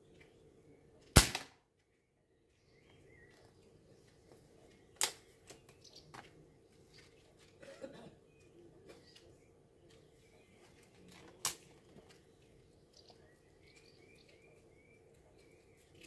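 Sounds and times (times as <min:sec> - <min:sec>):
air rifle shot: 0:01.2 - 0:01.6.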